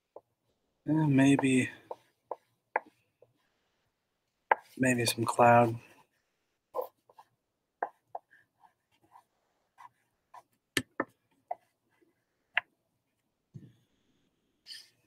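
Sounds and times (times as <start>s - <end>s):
crayon scratching on paper: 6.0s - 10.6s.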